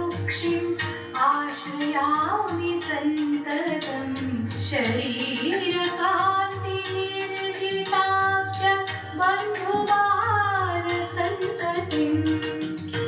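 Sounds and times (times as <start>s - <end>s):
percussion strokes: 0.0s - 13.0s.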